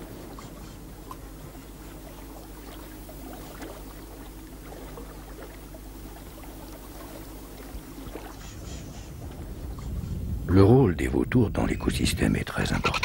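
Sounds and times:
river water flowing and lapping: 0.0s - 13.0s
low rumble: 8.6s - 13.0s.

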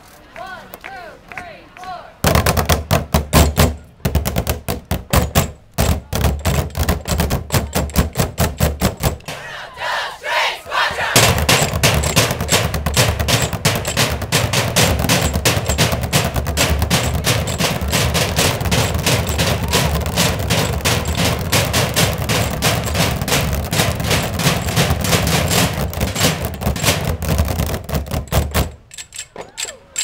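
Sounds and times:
drumming on plastic trash cans: 2.2s - 9.4s, 11.1s - 28.9s
drumsticks on metal trash cans: 11.1s - 30.0s.

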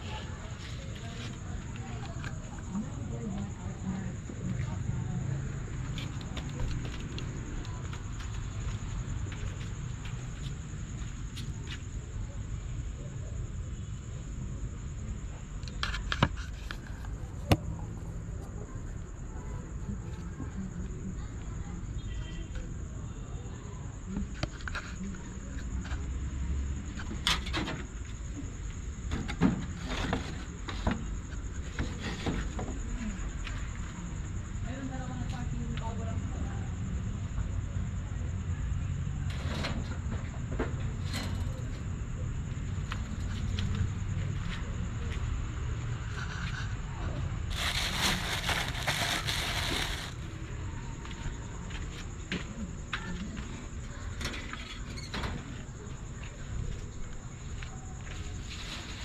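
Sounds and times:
high insect trill: 0.0s - 59.0s
footsteps: 47.5s - 50.2s
plastic bag crinkling: 47.5s - 50.2s.

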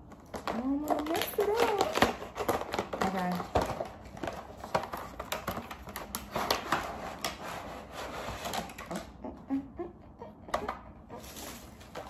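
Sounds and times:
packaging box clicks and rustles: 0.0s - 9.2s.

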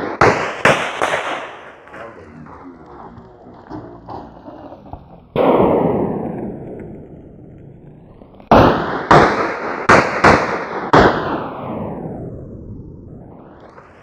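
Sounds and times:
pistol shots echoing: 0.0s - 2.0s, 8.5s - 11.9s.

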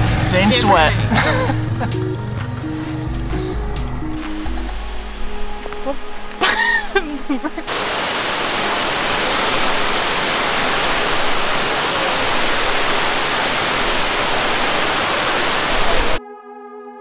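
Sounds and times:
waterfall rushing: 0.0s - 2.0s, 7.4s - 16.2s
held synthesizer chord: 0.0s - 7.8s.

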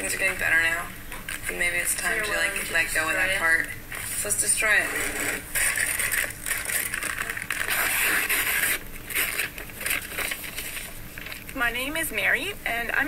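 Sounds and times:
puzzle pieces crunching and cracking: 5.6s - 10.9s.

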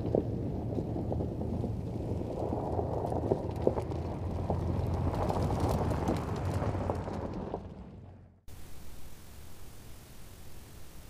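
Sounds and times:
tyres crunching over gravel: 0.0s - 8.2s
car engine running at low speed: 0.0s - 8.4s.

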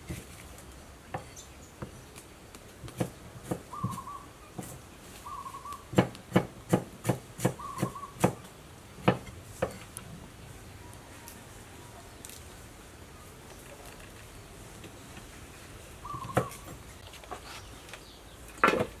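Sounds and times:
knife chopping on wooden block: 5.9s - 8.4s.

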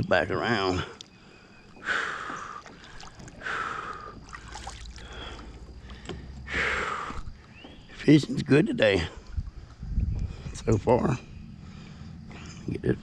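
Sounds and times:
kayak paddle splashing: 1.6s - 8.0s.

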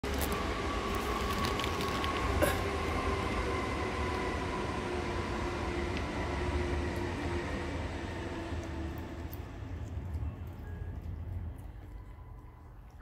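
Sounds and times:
low rumble and hiss: 7.2s - 13.0s.

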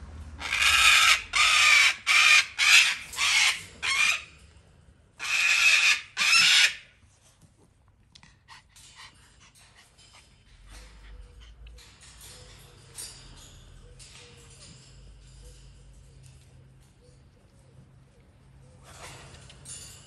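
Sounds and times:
parrots screeching: 0.4s - 4.4s, 5.2s - 7.0s.

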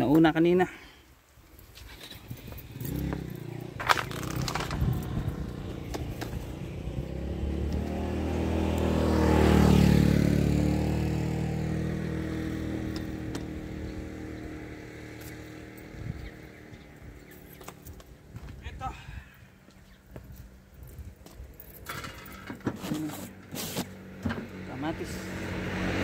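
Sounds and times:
vehicle engine passing by: 2.2s - 18.3s, 22.7s - 26.0s.

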